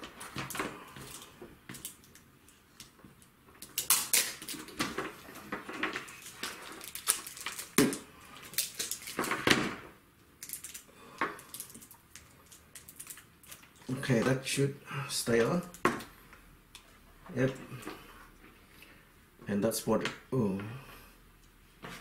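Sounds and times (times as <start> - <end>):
duct tape ripping: 3.6 - 9.6.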